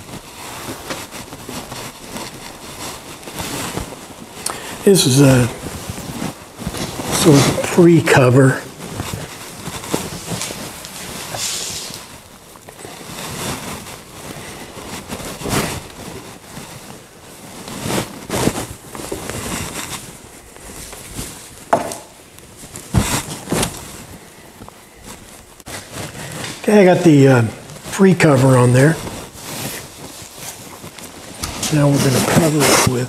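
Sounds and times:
cloth rustling: 0.0s - 33.0s
sharp knocks: 21.7s - 22.1s.

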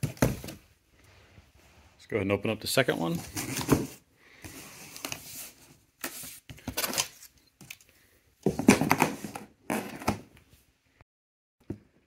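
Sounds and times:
cardboard rustling and scraping: 3.1s - 7.3s.

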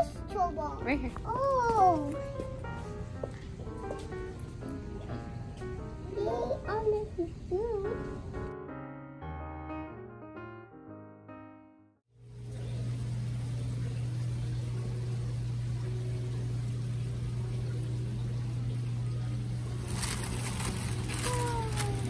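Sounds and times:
piano music: 0.0s - 22.0s
aquarium pumps humming and hissing: 12.2s - 22.0s.

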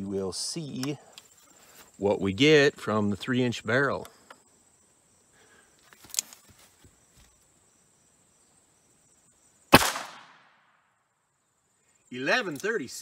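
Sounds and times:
revolver gunshot: 9.7s - 10.8s.

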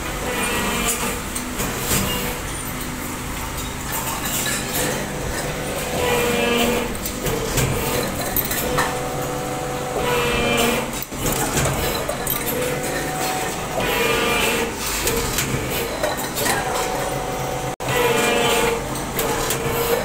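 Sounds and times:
machine hum: 0.0s - 20.0s
hydraulic press whine: 3.8s - 20.0s.

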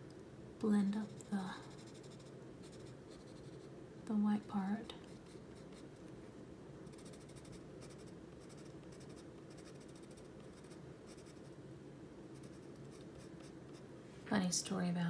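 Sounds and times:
low steady hum: 0.0s - 15.0s
pencil scratching on paper: 1.0s - 3.7s, 4.8s - 5.8s, 6.9s - 11.5s, 12.4s - 13.8s.

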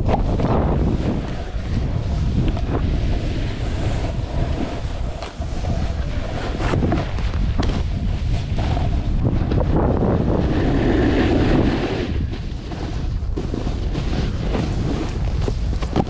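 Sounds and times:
snowboard scraping on snow: 0.0s - 16.0s
wind rumbling on microphone: 0.0s - 16.0s.

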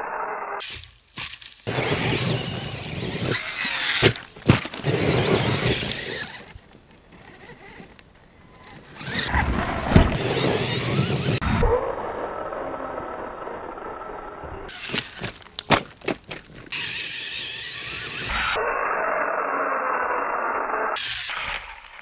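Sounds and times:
tyres scrabbling on dirt: 1.0s - 11.4s, 14.7s - 18.2s
electric motor whining: 1.7s - 11.6s, 16.7s - 18.6s.

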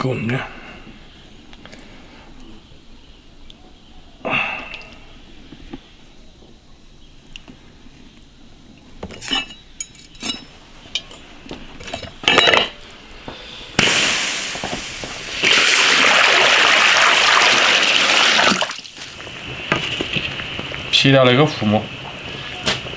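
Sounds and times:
water boiling: 13.8s - 22.9s
rush of water: 15.2s - 19.7s.

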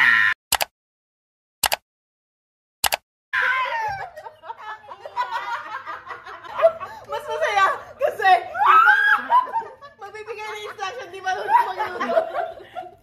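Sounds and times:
short clicks: 0.5s - 0.7s, 1.6s - 1.8s, 2.8s - 3.0s
women laughing and shrieking: 3.4s - 13.0s.

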